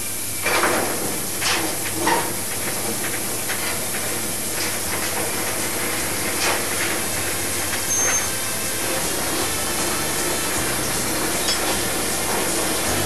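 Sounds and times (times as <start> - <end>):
machinery noise: 0.0 - 13.0
high squeal: 7.0 - 13.0.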